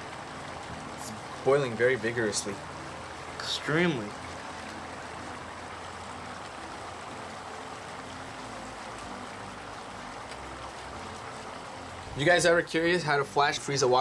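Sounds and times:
liquid nitrogen bubbling in metal bowl: 5.6s - 14.0s.

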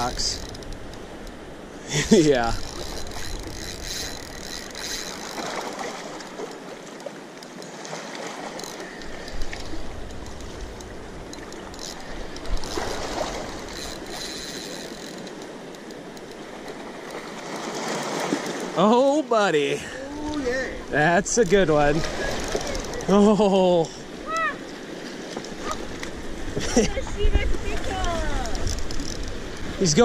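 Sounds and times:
fishing reel clicking: 0.0s - 1.4s, 2.4s - 6.4s, 8.5s - 17.7s, 22.3s - 23.2s, 28.6s - 29.5s
river water rushing: 0.0s - 30.0s.

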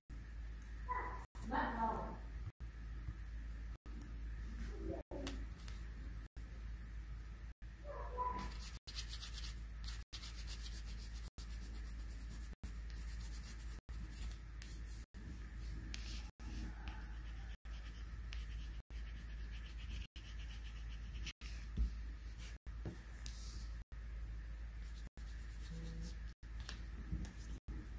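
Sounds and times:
pencil scratching on paper: 15.9s - 21.6s, 25.2s - 26.3s.

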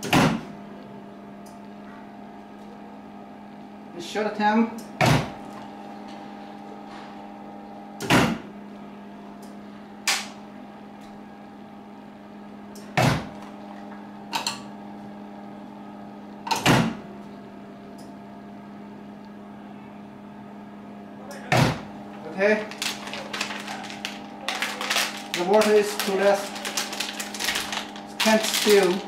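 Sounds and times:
sealing machine humming: 21.3s - 29.0s.

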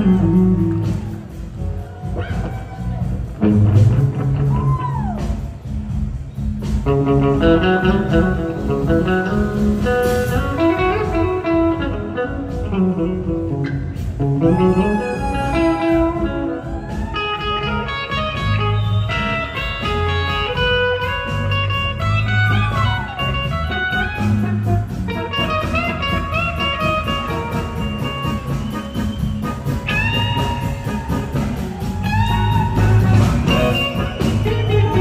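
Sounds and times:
electric guitar lead lines: 0.0s - 1.2s, 6.6s - 31.0s
bass guitar: 0.0s - 35.0s
drums: 0.0s - 35.0s.

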